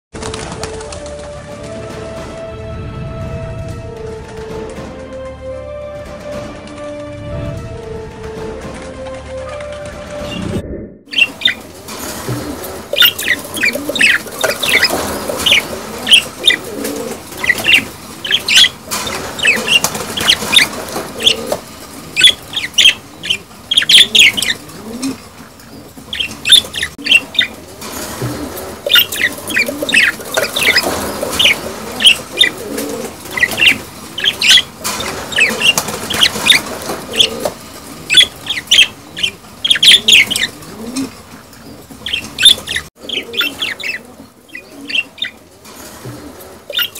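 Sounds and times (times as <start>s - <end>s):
budgerigars chattering: 11.1s - 11.6s, 12.5s - 21.5s, 22.1s - 24.8s, 26.1s - 27.6s, 28.8s - 37.4s, 38.0s - 41.1s, 41.7s - 45.4s, 46.7s - 46.9s.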